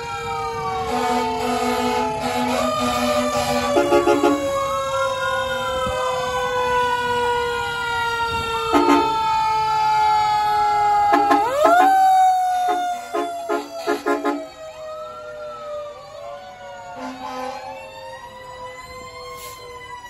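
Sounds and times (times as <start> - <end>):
air horn blasts: 0.9 - 4.6, 8.7 - 9.3, 11.1 - 14.6, 17.0 - 17.6.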